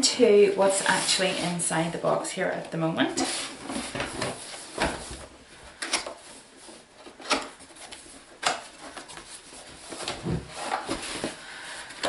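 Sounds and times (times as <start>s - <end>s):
cardboard rubbing and scraping: 0.6s - 2.0s, 3.1s - 5.3s, 6.2s - 11.4s.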